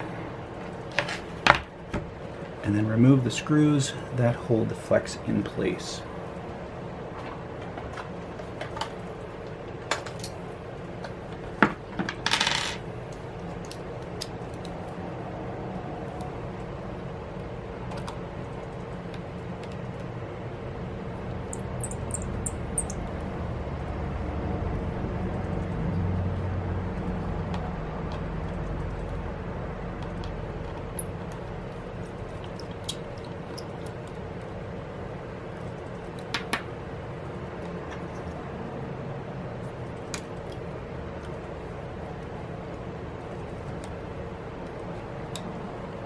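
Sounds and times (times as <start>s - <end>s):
low room hum: 0.0s - 46.0s.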